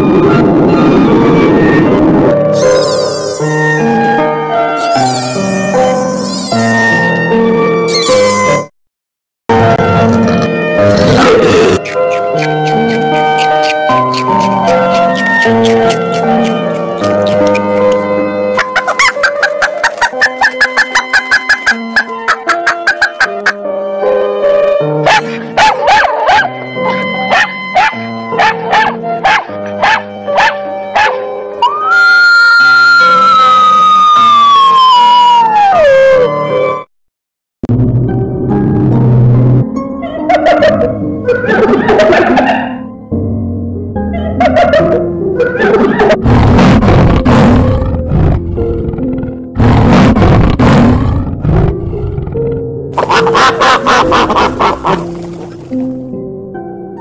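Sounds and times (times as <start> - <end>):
piano music: 0.0 - 8.7, 9.5 - 36.9, 38.0 - 46.3, 51.9 - 57.0
dog barking: 25.0 - 26.6, 27.3 - 31.2, 53.0 - 55.0
big cat roaring: 46.2 - 53.3.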